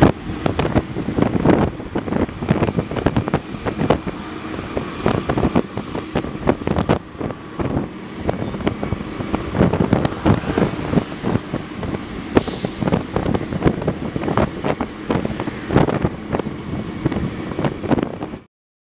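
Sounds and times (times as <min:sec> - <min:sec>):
train rumble: 0:00.0 - 0:18.5
wind buffeting microphone: 0:00.0 - 0:18.5
short hiss: 0:12.0 - 0:13.2.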